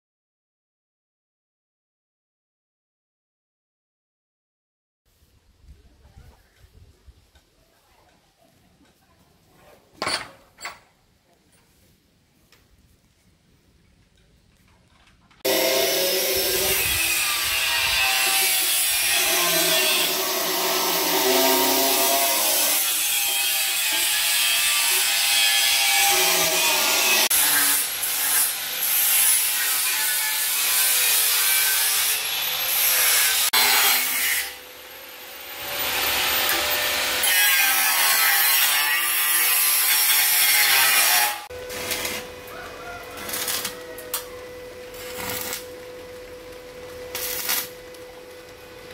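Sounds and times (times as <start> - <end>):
power tool grinding: 15.4 - 42.4.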